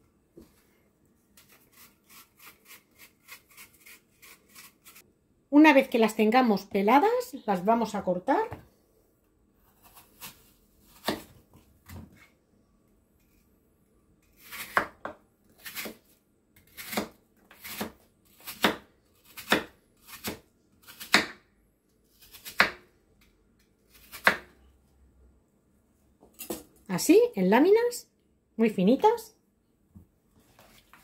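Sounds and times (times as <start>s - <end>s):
knife slicing apple: 1.4s - 5.0s, 9.6s - 12.0s, 14.2s - 21.4s, 22.1s - 22.9s, 23.9s - 24.5s.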